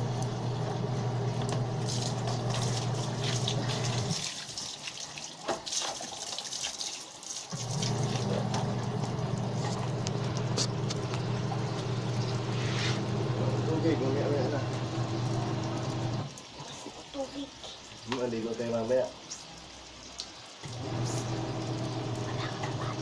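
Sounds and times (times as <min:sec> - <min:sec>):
hose running into basin: 0:01.4 - 0:16.9
water sloshing as clothes scrubbed: 0:01.7 - 0:13.1.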